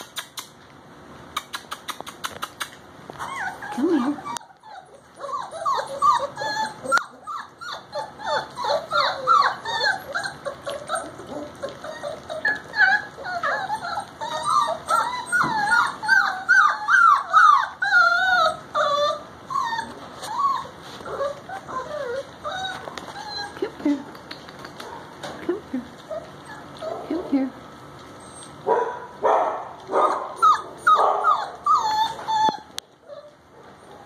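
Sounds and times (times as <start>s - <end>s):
puppies whining and yipping: 1.9s - 24.8s, 25.9s - 28.7s, 29.9s - 34.0s.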